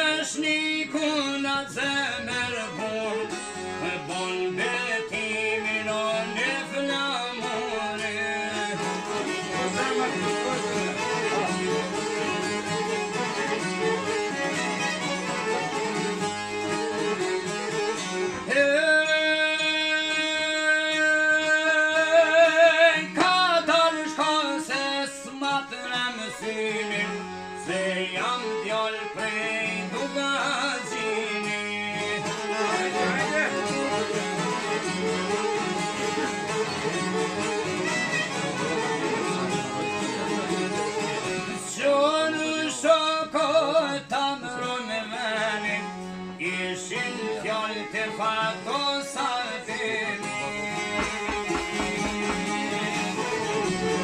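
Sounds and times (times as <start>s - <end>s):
man singing: 0.0s - 12.0s, 18.4s - 34.2s, 41.5s - 54.0s
plucked lutes: 0.0s - 20.4s, 21.4s - 42.5s, 50.0s - 54.0s.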